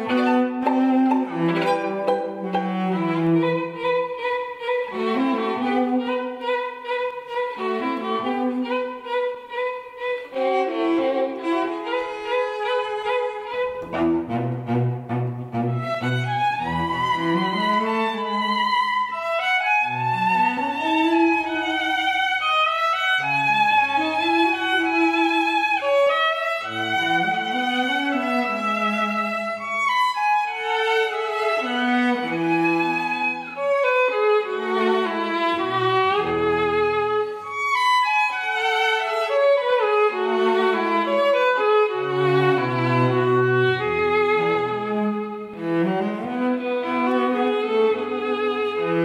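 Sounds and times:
cellos playing sustained notes: 0:00.0 - 0:49.0.

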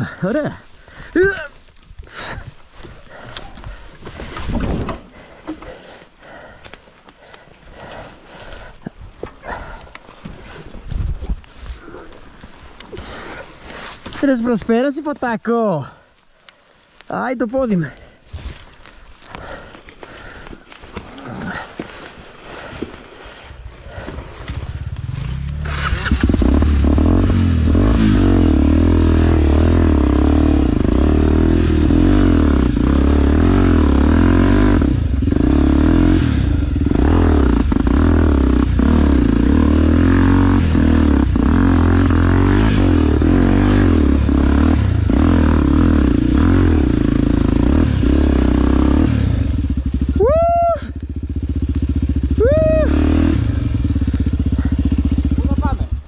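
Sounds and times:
branches and stones hitting bike: 0:00.0 - 0:30.1
dirt bike engine running hard: 0:23.8 - 0:56.0.

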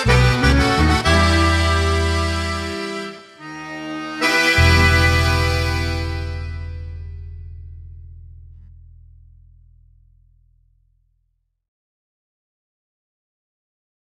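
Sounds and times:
accordion music: 0:00.0 - 0:07.9.

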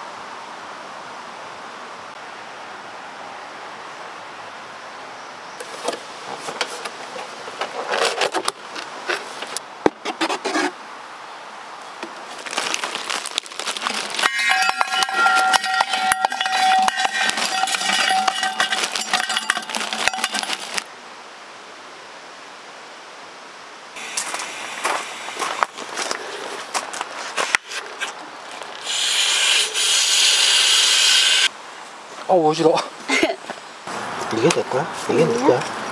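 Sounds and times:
small metal objects clinking: 0:12.4 - 0:20.9
ringing tone: 0:14.2 - 0:20.4
background hiss: 0:18.9 - 0:35.9.

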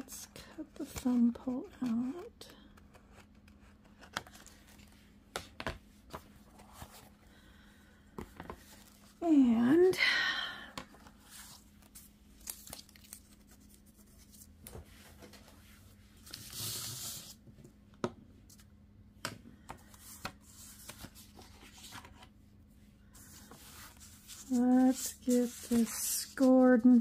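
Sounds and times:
paper rustling and sliding: 0:16.2 - 0:17.4, 0:23.2 - 0:27.0.

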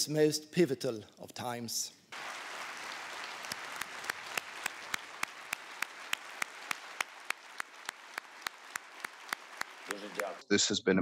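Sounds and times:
audience clapping: 0:02.1 - 0:10.4.

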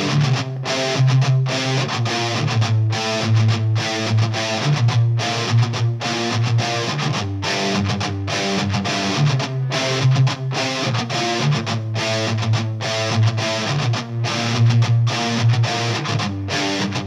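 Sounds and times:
electric guitar music: 0:00.0 - 0:17.0.

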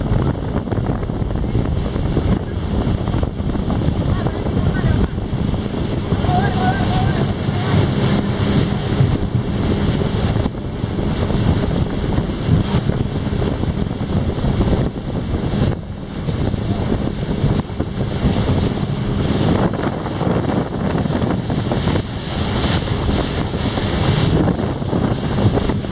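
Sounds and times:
boat engine hum: 0:00.0 - 0:25.9
water rushing past hull: 0:00.0 - 0:25.9
wind buffeting microphone: 0:00.0 - 0:25.9.

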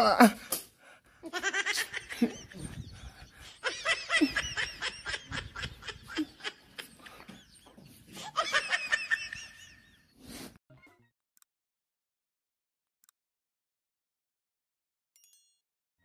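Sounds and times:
person laughing: 0:00.0 - 0:00.5, 0:01.2 - 0:10.0.

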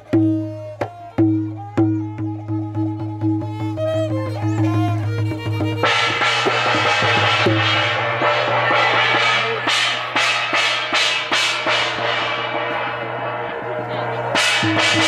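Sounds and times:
hand drums: 0:00.0 - 0:15.0
handheld gong struck: 0:04.4 - 0:15.0.

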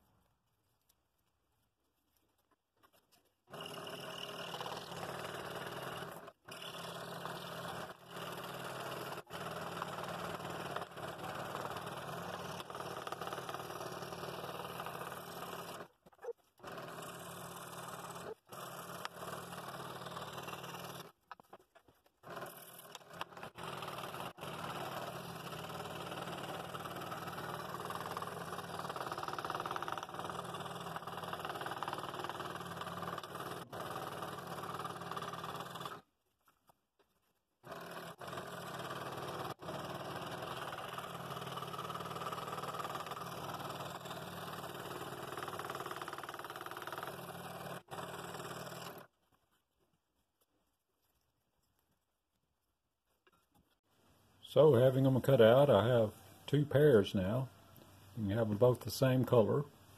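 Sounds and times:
scroll saw cutting wood: 0:02.8 - 0:36.1, 0:37.6 - 0:49.2.

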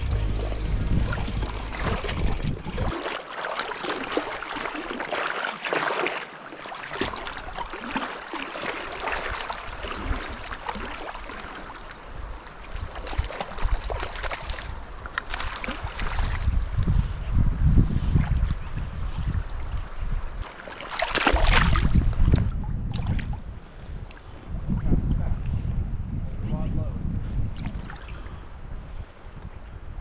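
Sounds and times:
wind buffeting microphone: 0:00.0 - 0:03.2, 0:15.9 - 0:20.4, 0:21.4 - 0:30.0
river current rushing and splashing: 0:00.0 - 0:14.6.

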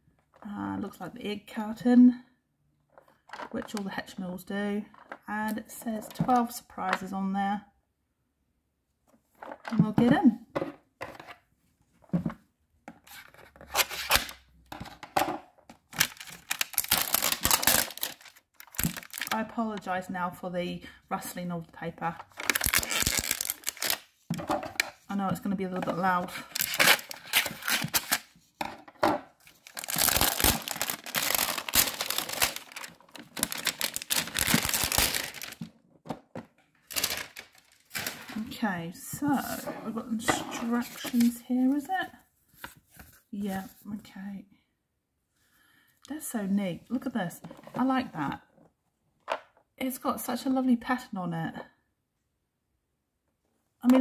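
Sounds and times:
plastic wrapper crumpling and tearing: 0:15.9 - 0:19.4, 0:22.3 - 0:24.1, 0:26.4 - 0:28.3, 0:29.4 - 0:35.7, 0:36.8 - 0:38.4
hands rubbing plastic film wrap: 0:29.4 - 0:35.6.

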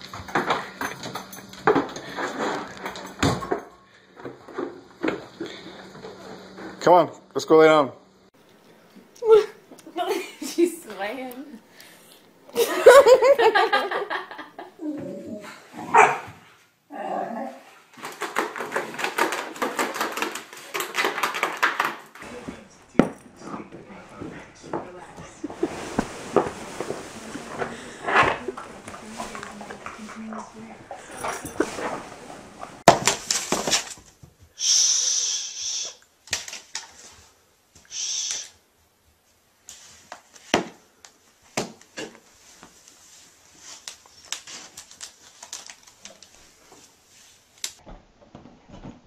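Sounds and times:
dogs barking during play: 0:15.8 - 0:16.5
cat hissing: 0:37.9 - 0:38.6.

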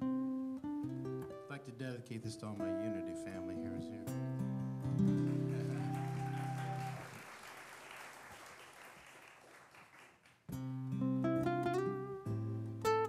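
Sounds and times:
fingerpicked acoustic guitar: 0:00.0 - 0:05.7, 0:10.5 - 0:13.0
acoustic guitar notes: 0:00.0 - 0:06.9, 0:10.5 - 0:13.0
audience applause: 0:05.2 - 0:10.4.

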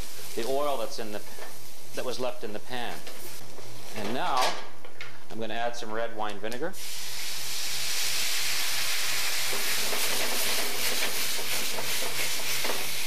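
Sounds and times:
vinegar sizzling in hot pan: 0:00.0 - 0:04.0, 0:06.8 - 0:13.0.

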